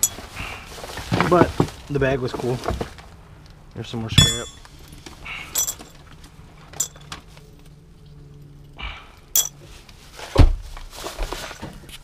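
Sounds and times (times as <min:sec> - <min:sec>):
scrap metal clinking: 0:00.0 - 0:00.4, 0:04.2 - 0:06.0, 0:06.7 - 0:07.2, 0:09.4 - 0:09.6.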